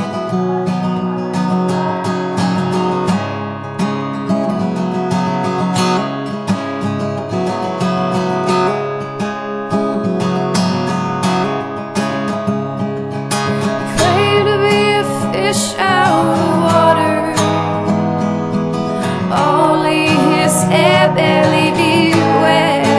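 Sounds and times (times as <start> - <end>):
strummed acoustic guitar: 0.0 - 22.9
person singing: 13.6 - 18.0, 18.9 - 22.9.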